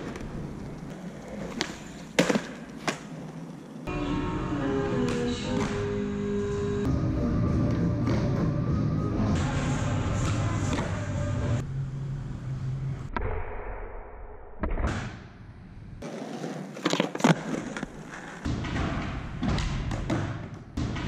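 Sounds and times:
skateboard wheels rolling on concrete: 0.0 - 3.9, 16.0 - 18.5
skateboard pops and landing slaps: 1.5 - 3.1.

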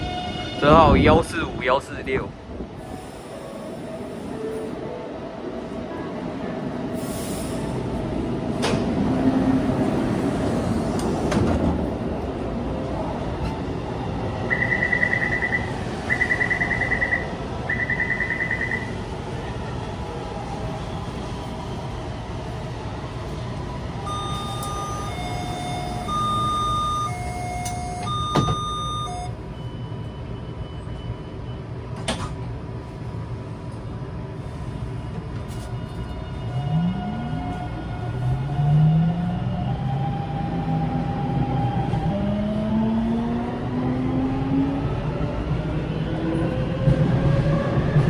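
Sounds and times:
train car rumble: 0.0 - 48.0
buzzy beeps: 24.1 - 29.3
two-note door-closing chime: 24.1 - 29.3
train doors knocking shut: 27.6 - 29.1.

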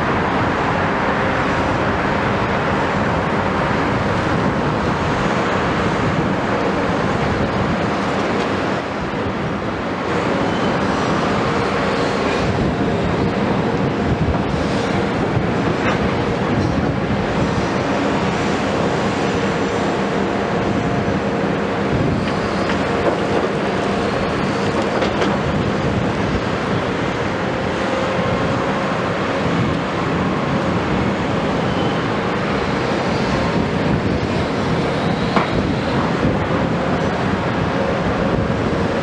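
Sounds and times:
excavator diesel engines: 0.0 - 39.0.

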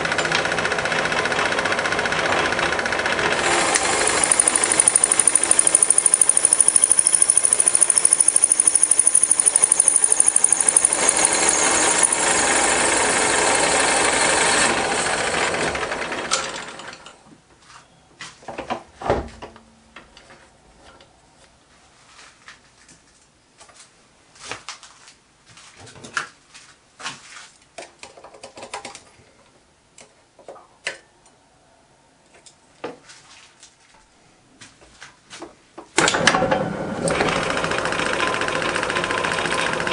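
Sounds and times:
metal lathe running: 0.0 - 17.1, 37.0 - 39.9.

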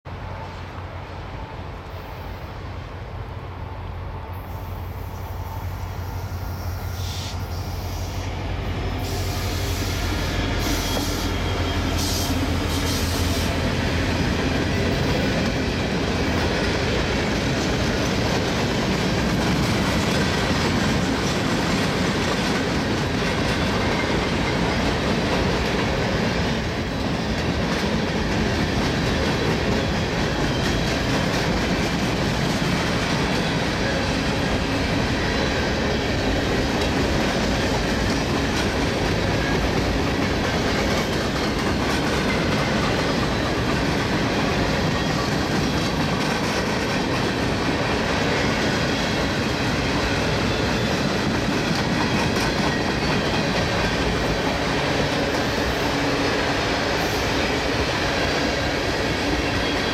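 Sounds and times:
freight cars clattering on rails: 13.7 - 56.6.

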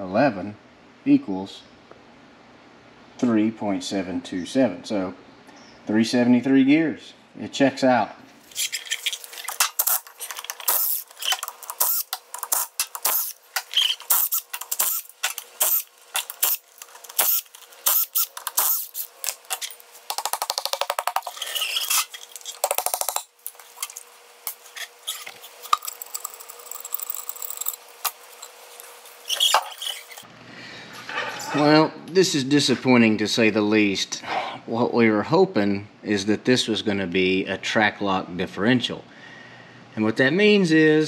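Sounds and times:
cordless power tool rattling: 9.2 - 24.1, 25.2 - 30.2.

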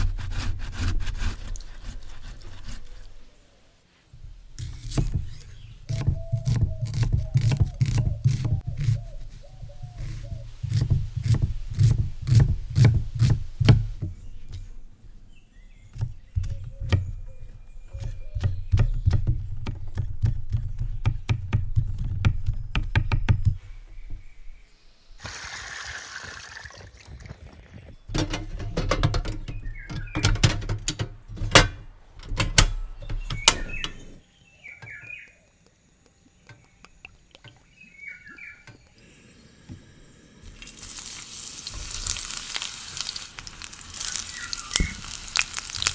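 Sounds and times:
birds chirping: 2.8 - 10.9, 14.0 - 45.9
water pouring and draining: 25.2 - 27.6, 40.4 - 45.9.

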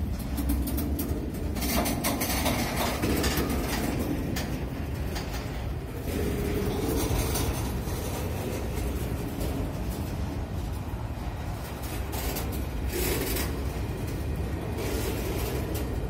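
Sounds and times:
freight cars clanking: 0.0 - 16.0
train wheels rumbling on rails: 0.0 - 16.0.

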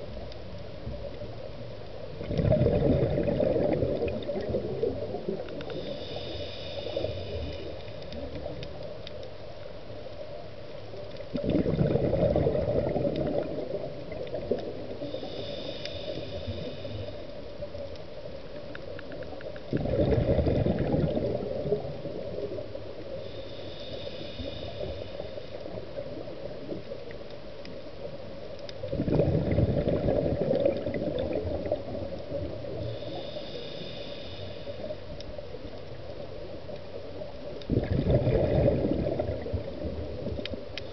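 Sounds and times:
bubbling exhale underwater: 2.2 - 6.2, 11.3 - 16.8, 19.7 - 22.6, 28.8 - 33.2, 37.7 - 40.5
regulator inhale hiss: 5.3 - 8.4, 14.8 - 18.1, 22.9 - 26.0, 32.6 - 35.3.

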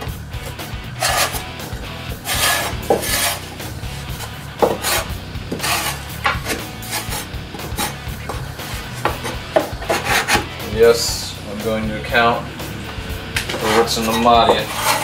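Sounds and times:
metal scraper rasping on wood: 0.4 - 10.6, 13.5 - 15.0.

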